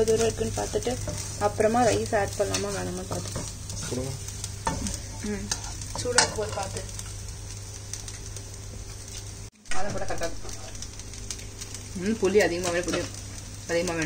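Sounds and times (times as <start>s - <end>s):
rice sizzling: 0.0s - 14.0s
utensils scraping rice in wok: 0.2s - 6.6s.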